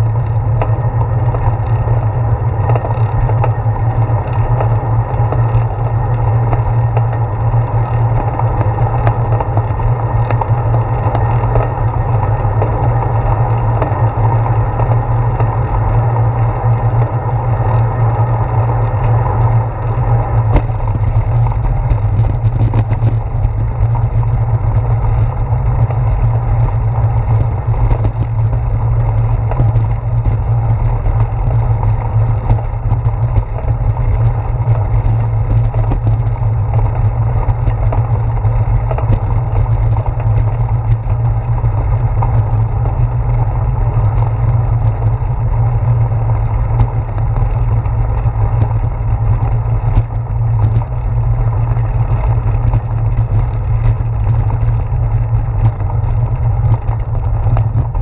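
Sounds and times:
bicycle rolling over brick pavers: 0:00.0 - 0:58.0.

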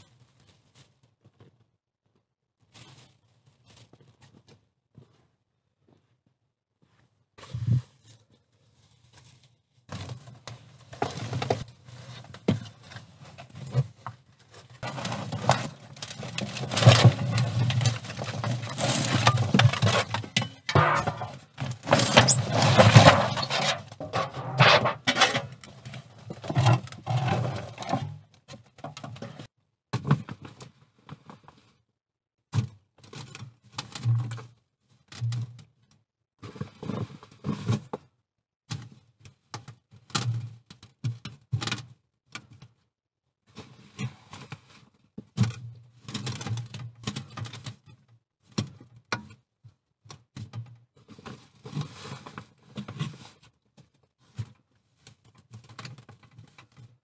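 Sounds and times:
scraping and rustling of earth: 0:07.4 - 0:28.2.

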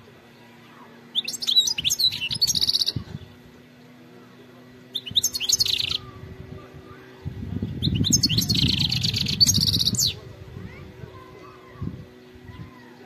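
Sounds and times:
finch twittering and trilling: 0:00.7 - 0:03.4, 0:04.9 - 0:10.3.

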